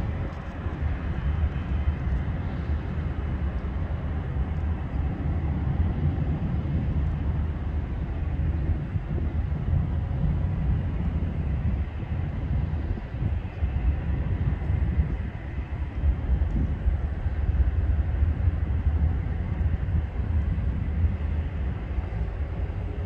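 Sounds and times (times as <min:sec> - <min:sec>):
jet engines rumbling: 0:00.0 - 0:23.0.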